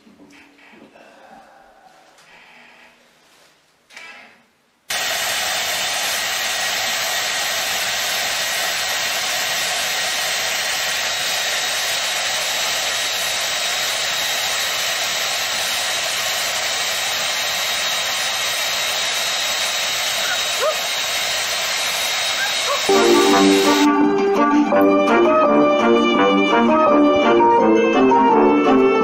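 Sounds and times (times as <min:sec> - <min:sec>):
hair dryer blowing: 0:04.9 - 0:24.6.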